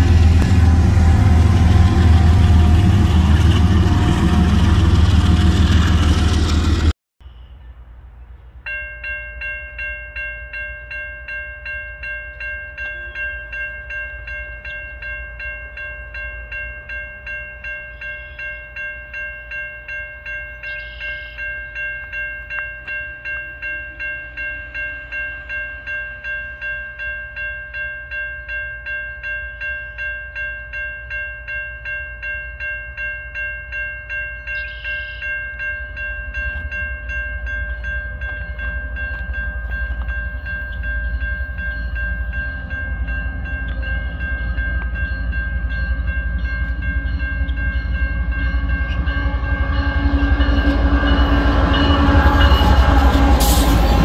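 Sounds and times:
loud train sound effect: 0.0s - 7.0s, 38.0s - 54.0s
railroad crossing bell ringing: 0.0s - 7.4s, 8.6s - 54.0s.

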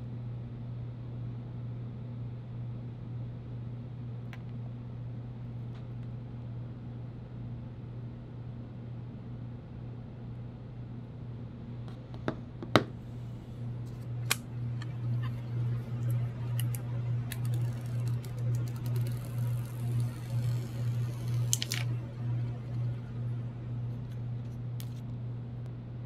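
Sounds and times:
low hum: 11.1s - 26.0s.

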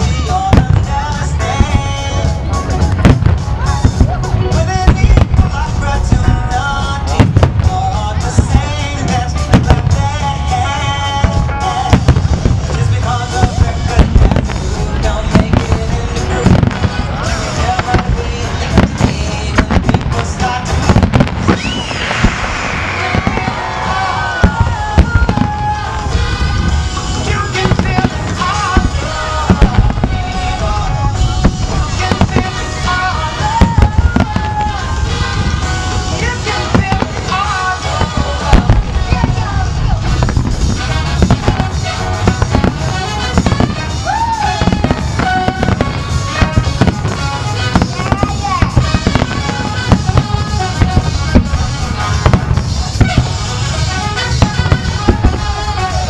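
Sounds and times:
music playing: 0.0s - 56.0s
firework shells bursting: 11.2s - 56.0s.

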